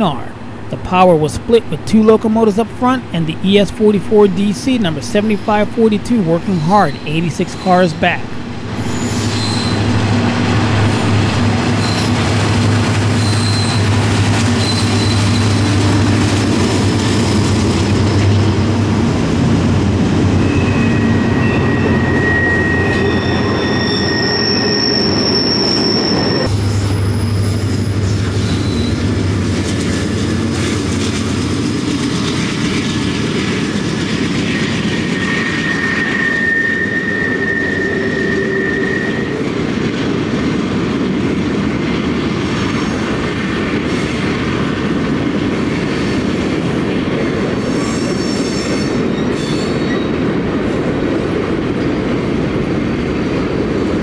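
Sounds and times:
diesel locomotive drone: 0.0s - 49.3s
train wheels squealing: 8.8s - 10.2s, 11.8s - 12.2s, 13.1s - 15.8s, 20.4s - 29.1s, 34.5s - 39.4s, 47.6s - 50.2s.

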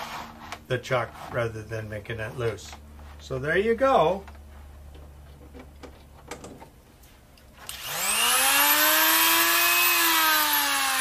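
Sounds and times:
die grinder motor whine: 7.6s - 11.0s.

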